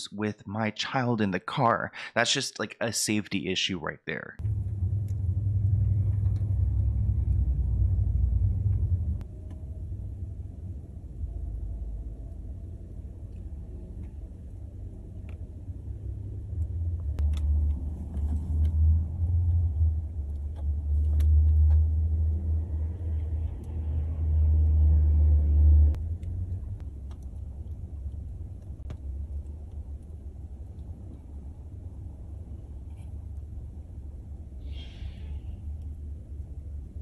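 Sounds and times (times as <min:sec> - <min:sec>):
low rumble: 0:04.4 - 0:37.0.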